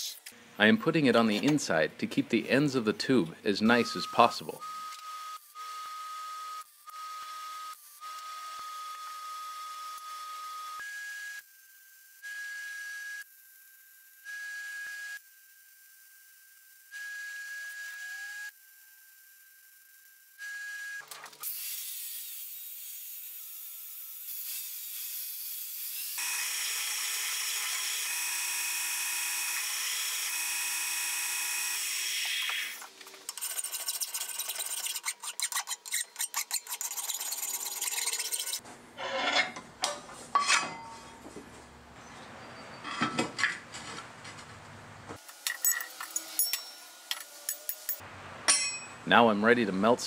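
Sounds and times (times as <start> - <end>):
belt sander grinding steel: 32.7 - 39.6, 45.2 - 48.9.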